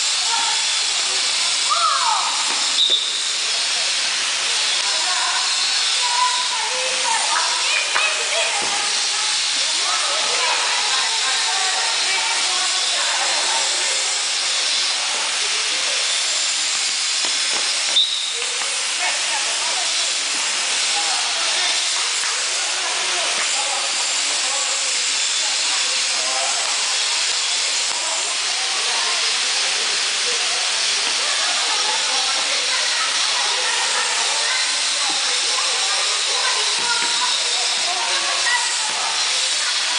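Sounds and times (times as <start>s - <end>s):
faint voices: 0.0s - 39.9s
loud hiss: 0.0s - 39.9s
high squeak: 1.6s - 3.5s, 17.7s - 18.5s.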